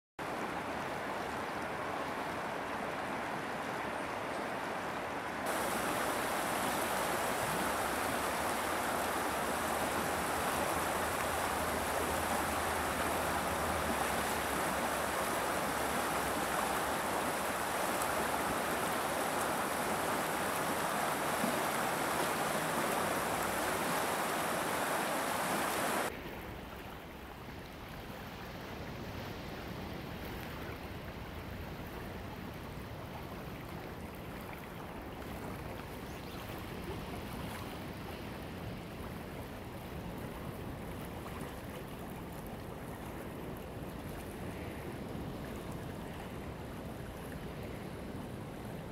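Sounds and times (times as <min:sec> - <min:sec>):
river water rushing over cobbles: 0:00.2 - 0:28.7.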